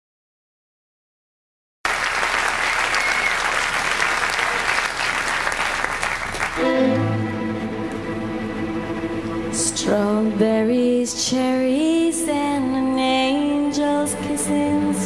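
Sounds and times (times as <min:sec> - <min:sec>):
audience applauding: 0:01.9 - 0:07.2
band playing sustained notes: 0:06.6 - 0:15.0.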